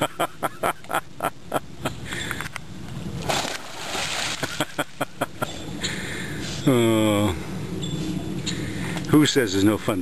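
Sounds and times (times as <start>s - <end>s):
rush of water: 3.1s - 5.2s
water splashing rhythmically: 3.1s - 5.4s.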